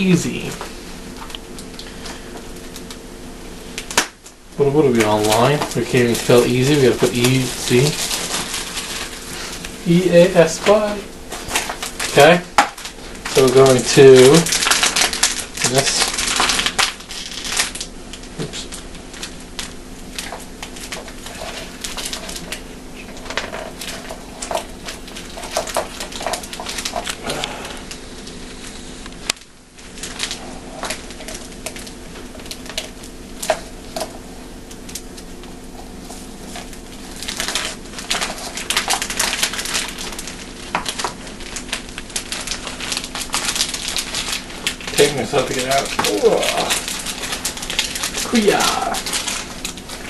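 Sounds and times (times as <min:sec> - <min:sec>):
steady low hum: 0:00.0 - 0:50.0
hands crinkling paper cup: 0:03.7 - 0:50.0.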